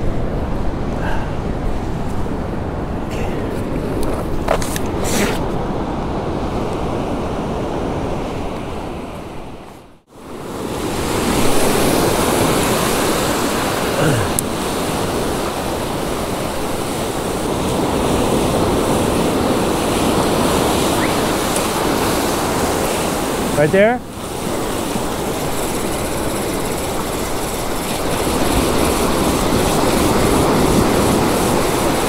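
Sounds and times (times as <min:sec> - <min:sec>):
wind on microphone: 0:00.0 - 0:32.0
surf breaking on sand: 0:10.3 - 0:32.0.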